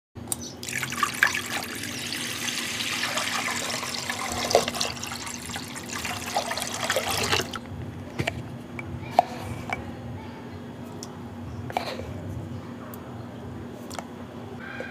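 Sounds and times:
water pouring into pot: 0.6s - 7.6s.

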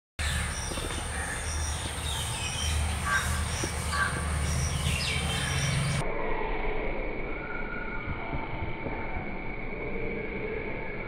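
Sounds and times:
crow cawing: 0.2s - 1.9s, 3.0s - 5.8s
steady low rumble: 0.2s - 11.0s.

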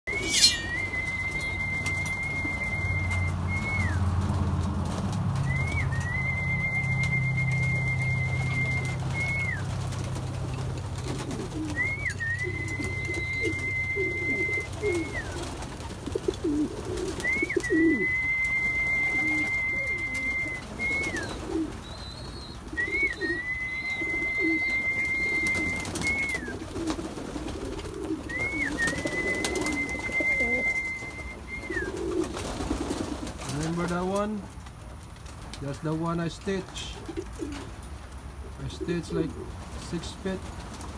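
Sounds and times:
high whistle-like tone: 0.1s - 4.0s, 28.4s - 31.9s
pigeons cooing: 0.1s - 34.3s, 36.8s - 40.9s.

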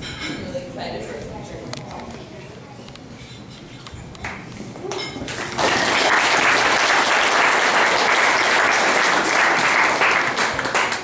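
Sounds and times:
guests applauding: 5.2s - 11.0s.

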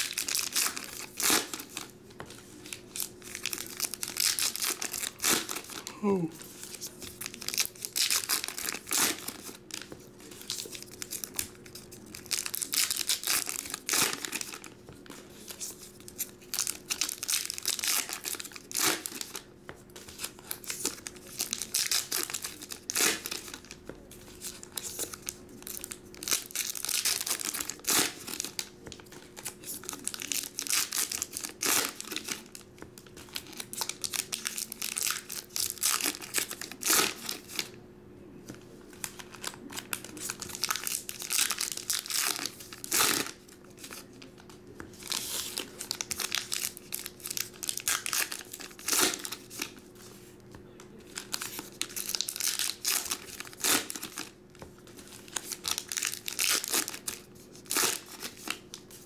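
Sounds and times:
card pack wrappers crinkling: 0.0s - 1.9s, 2.6s - 5.9s, 6.6s - 19.4s, 20.0s - 37.7s, 38.9s - 49.9s, 51.0s - 59.0s.

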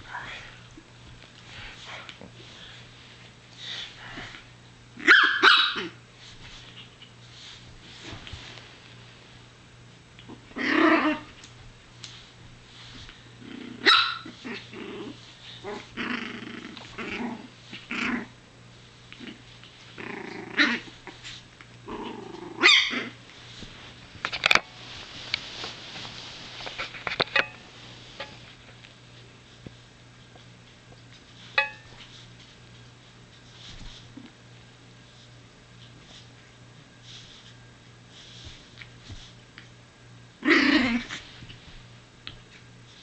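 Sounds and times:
puppy small barks: 5.0s - 6.0s
puppy growling: 13.4s - 18.4s, 20.0s - 21.2s, 21.8s - 23.2s, 40.4s - 41.2s.

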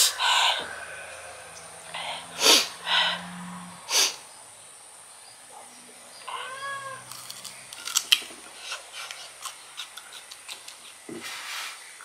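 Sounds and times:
breathy hiss: 0.0s - 4.4s
person chewing crunchy fruit: 7.1s - 11.1s.

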